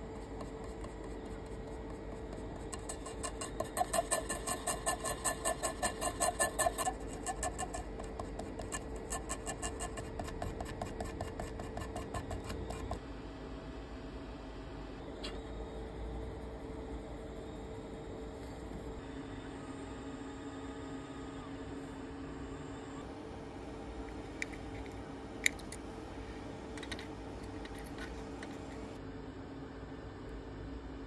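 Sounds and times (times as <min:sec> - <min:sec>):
tool scratching memory card: 0:00.2 - 0:13.0.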